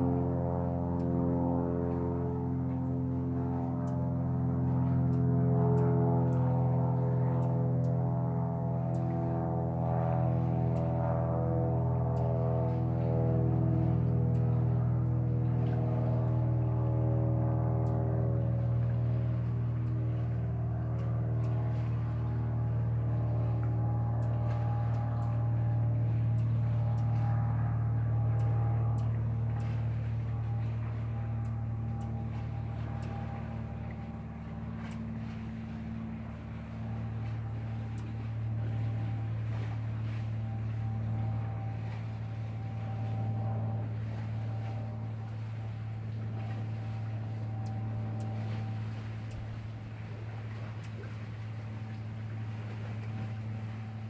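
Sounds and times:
motor humming: 0.0 - 54.0
faint high ticks: 4.8 - 8.0, 8.8 - 9.3, 10.6 - 10.9, 12.1 - 12.8, 13.8 - 16.4, 17.8 - 22.3, 23.2 - 53.5
faint higher tone: 13.1 - 54.0.

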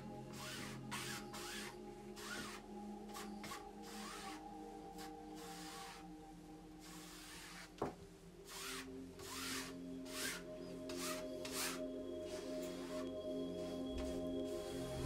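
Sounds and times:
soft ambient music: 0.0 - 15.0
paintbrush scrubbing on canvas: 8.5 - 15.0.

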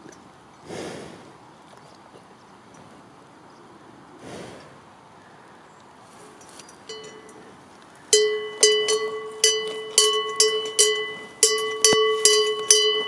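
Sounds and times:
cow bell clanking: 6.4 - 13.0.

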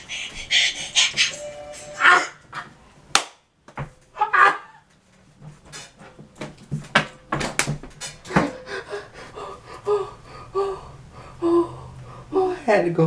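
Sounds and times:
man laughing and wheezing: 0.0 - 1.4, 8.2 - 10.2.

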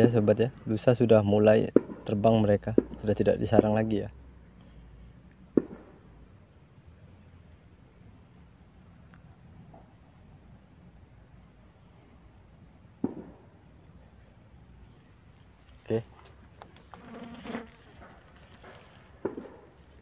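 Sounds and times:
insects droning: 0.0 - 20.0
sharp knocks: 13.0 - 13.4.

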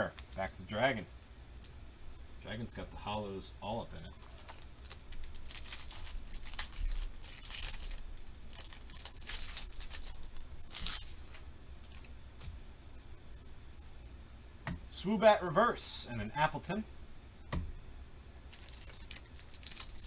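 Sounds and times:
foil wrapper crinkling and tearing: 4.2 - 12.1, 18.5 - 20.0.

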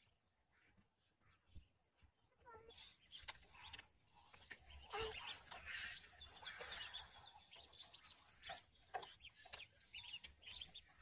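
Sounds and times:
ducklings peeping: 2.4 - 11.0.

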